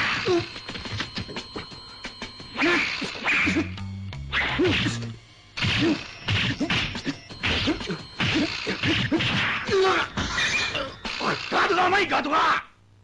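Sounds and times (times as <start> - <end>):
cartoon punch whacks: 5.6 - 10.4.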